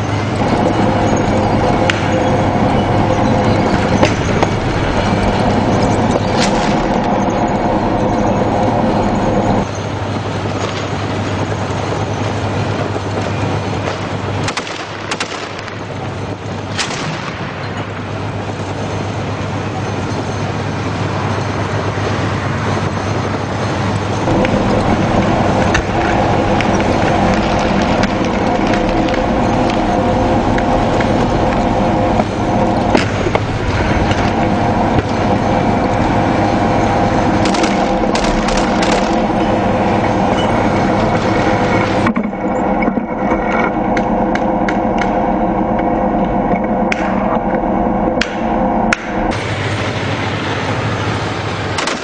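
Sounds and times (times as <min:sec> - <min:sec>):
tank engine drone: 0:00.0 - 0:52.0
weapons fire cracks: 0:16.7 - 0:17.6, 0:37.4 - 0:39.3.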